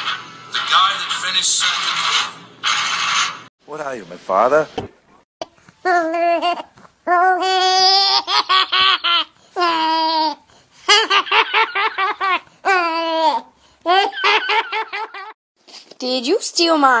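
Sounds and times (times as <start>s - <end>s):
high-pitched voice laughing: 5.9s - 15.3s.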